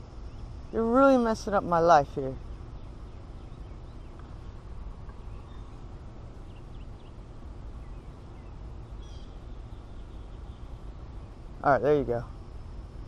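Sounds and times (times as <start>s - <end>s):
steady low rumble: 0.0s - 13.0s
faint bird chirps: 2.4s - 12.3s.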